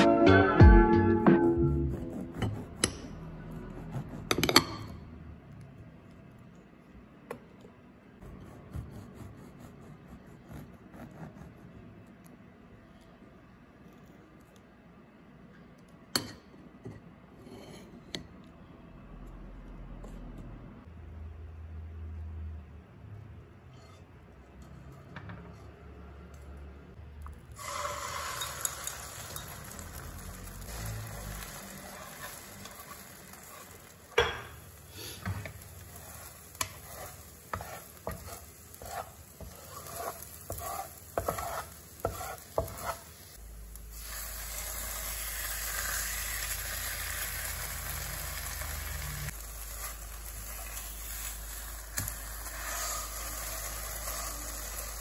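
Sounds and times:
food sizzling in wok: 27.6s - 55.0s.

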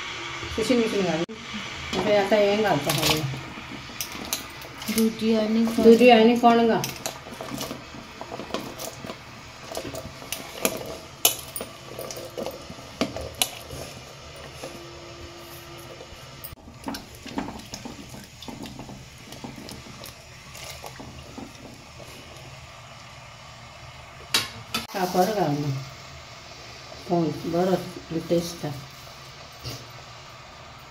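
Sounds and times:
small splashes: 16.7s - 22.5s.

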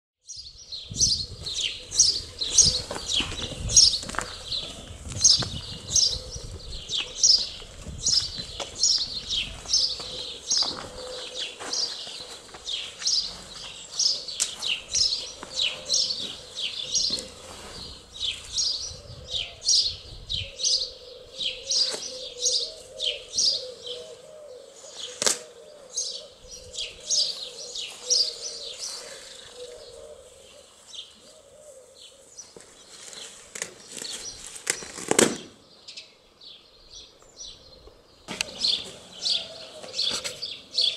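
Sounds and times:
songbird chirping: 0.2s - 40.9s
sharp pop: 25.2s - 25.5s.

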